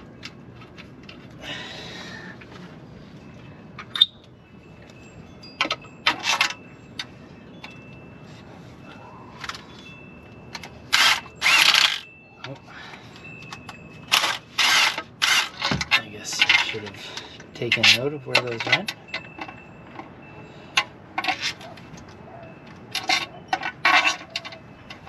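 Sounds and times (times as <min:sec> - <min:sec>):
drill-driver spinning bolts: 0:10.9 - 0:12.0, 0:14.1 - 0:16.6.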